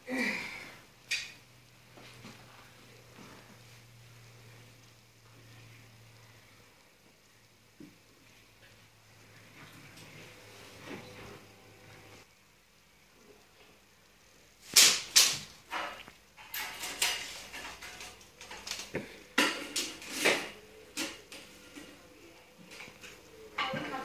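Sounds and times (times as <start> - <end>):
hand tools clattering: 15.7 - 21.9.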